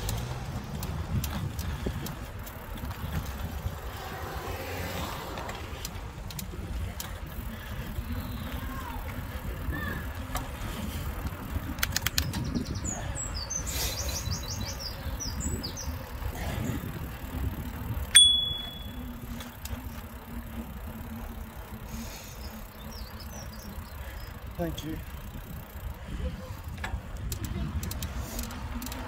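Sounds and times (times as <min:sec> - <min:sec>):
bicycle tyre and wind noise: 0:00.0 - 0:29.0
birds chirping: 0:01.6 - 0:26.8
bicycle bell ringing: 0:18.1 - 0:19.2.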